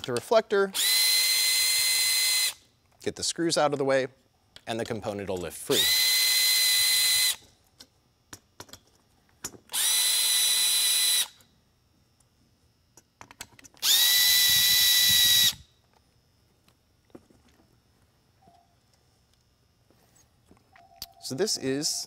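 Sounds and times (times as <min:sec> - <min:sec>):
cordless drill whining: 0:00.7 - 0:02.6, 0:05.7 - 0:07.4, 0:09.7 - 0:11.4, 0:13.8 - 0:15.7.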